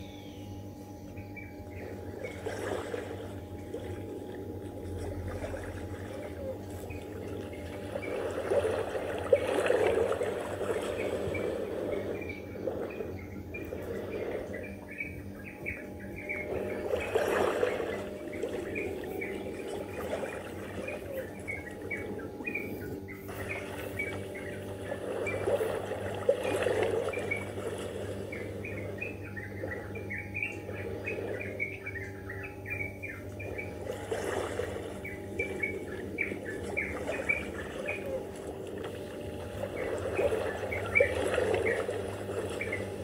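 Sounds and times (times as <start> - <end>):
steady low hum: 0.0 - 43.0
small birds chirping: 5.0 - 43.0.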